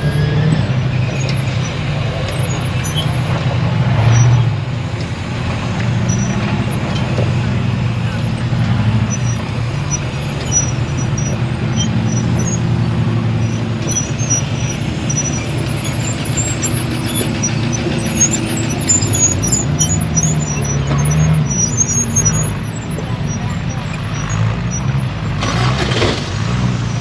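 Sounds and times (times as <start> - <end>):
off-road vehicle engine running: 0.0 - 27.0
faint high squeaks: 8.0 - 25.0.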